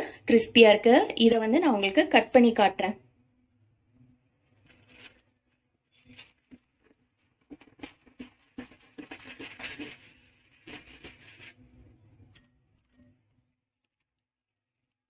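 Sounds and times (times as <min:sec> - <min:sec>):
knife crunching through bread crust: 0:04.6 - 0:05.3, 0:05.9 - 0:11.7.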